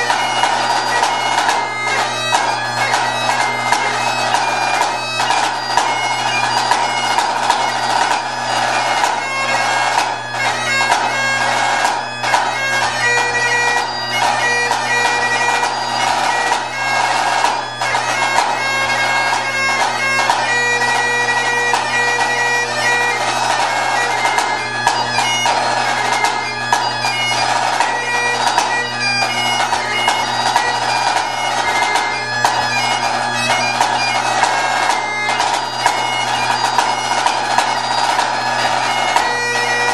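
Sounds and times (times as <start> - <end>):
bagpipes playing a tune: 0.0 - 39.9.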